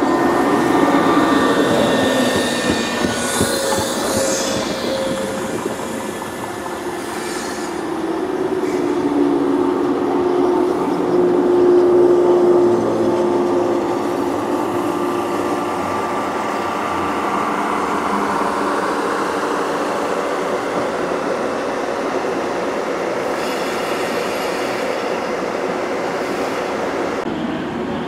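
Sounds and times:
train wheels running: 0:00.0 - 0:27.9.

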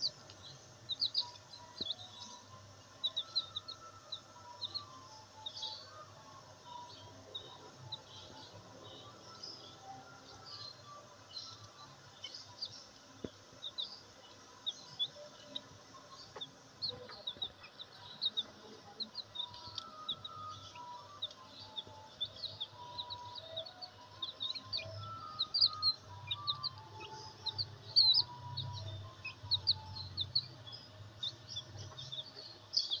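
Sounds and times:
chicks peeping: 0:00.0 - 0:33.0.

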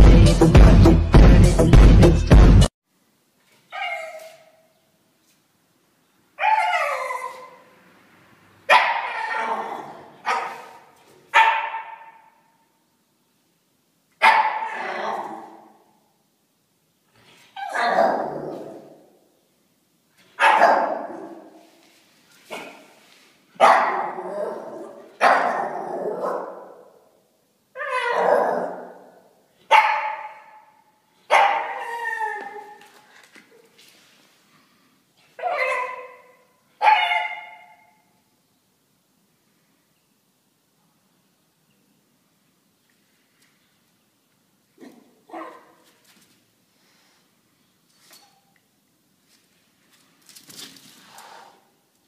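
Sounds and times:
puppy barking: 0:08.7 - 0:12.3, 0:14.2 - 0:15.1, 0:20.4 - 0:21.5, 0:23.6 - 0:26.9, 0:29.7 - 0:30.6, 0:31.3 - 0:32.7, 0:35.4 - 0:37.9, 0:44.8 - 0:45.8.

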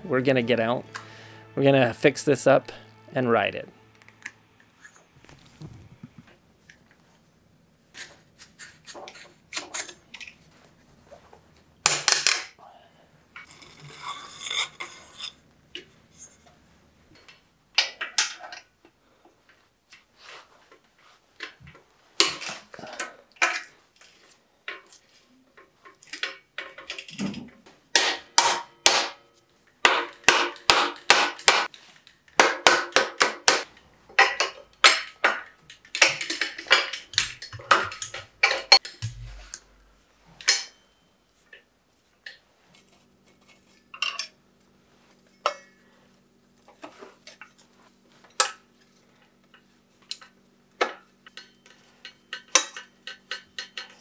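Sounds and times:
metal bicycle parts clinking: 0:34.1 - 0:39.8, 0:40.4 - 0:41.6, 0:49.5 - 0:54.0.

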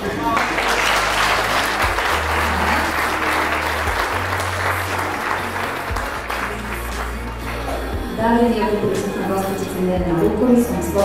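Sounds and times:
crowd applauding: 0:00.0 - 0:08.2
background music with bass notes: 0:00.0 - 0:11.0.

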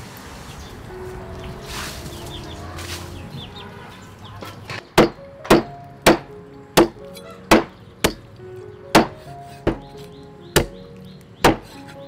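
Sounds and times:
cleaver chopping on wooden board: 0:05.0 - 0:08.3, 0:09.0 - 0:10.8, 0:11.4 - 0:11.9.

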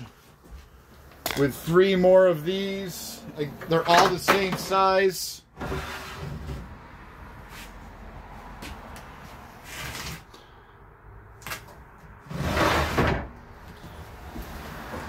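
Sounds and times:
plastic drawer scraping in wood: 0:05.6 - 0:06.7, 0:12.2 - 0:13.3.

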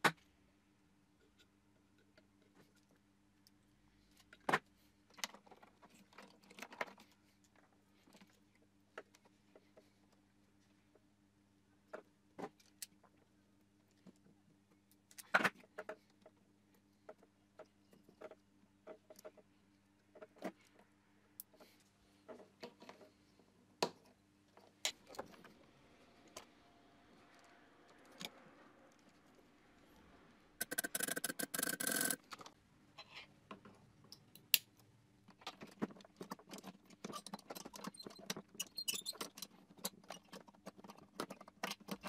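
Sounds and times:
plastic connectors clicking: 0:30.6 - 0:32.5.

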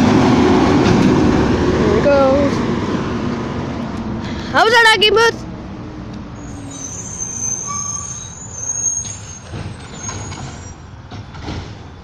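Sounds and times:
garbage truck engine rumbling: 0:06.2 - 0:12.0
brake squeal: 0:06.4 - 0:12.0.

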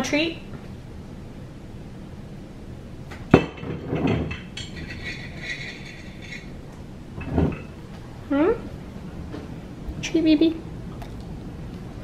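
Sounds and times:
knocks and clatter: 0:03.4 - 0:06.5.

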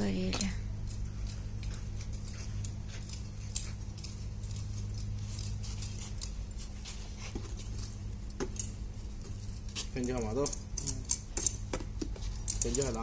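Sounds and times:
charcoal embers crackling: 0:00.0 - 0:13.0
steady low hum: 0:00.0 - 0:13.0
rod poking coals: 0:00.4 - 0:13.0.

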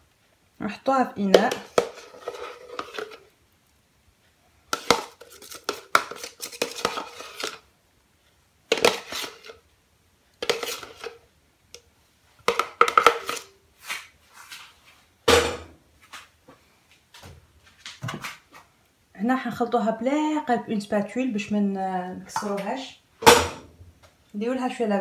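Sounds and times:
metal spoon scraping a steel bowl: 0:01.5 - 0:03.2, 0:04.8 - 0:07.6, 0:10.4 - 0:11.2, 0:12.9 - 0:13.5.

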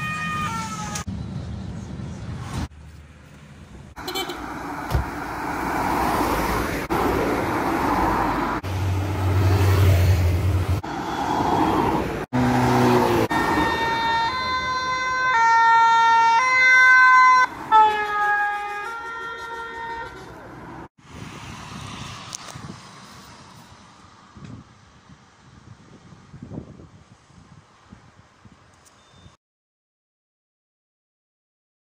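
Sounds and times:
vehicles passing: 0:00.0 - 0:28.7
two-tone emergency siren: 0:13.1 - 0:20.1.

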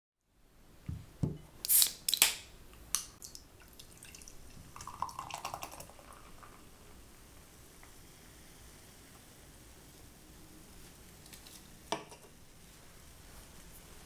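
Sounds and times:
beer pouring and fizzing: 0:03.2 - 0:06.8.

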